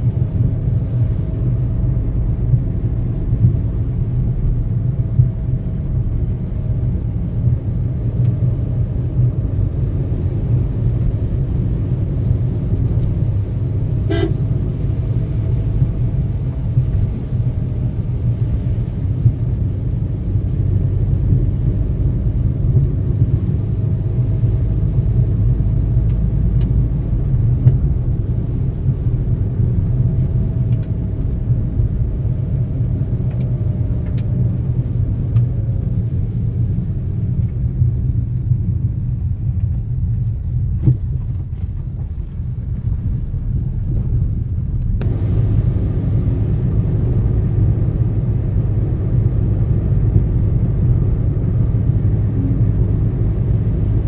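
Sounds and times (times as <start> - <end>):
car engine running: 0.0 - 54.0
tyre noise on wet road: 0.0 - 54.0.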